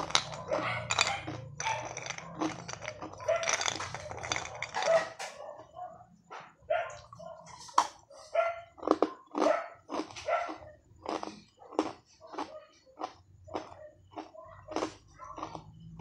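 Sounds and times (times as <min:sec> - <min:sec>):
ice cubes clinking: 0:00.0 - 0:05.4
ice cubes crunching when bitten: 0:00.0 - 0:05.4, 0:08.8 - 0:15.8
dog yipping: 0:00.4 - 0:02.0, 0:03.2 - 0:06.0, 0:06.7 - 0:08.7, 0:09.4 - 0:10.7, 0:13.8 - 0:15.4.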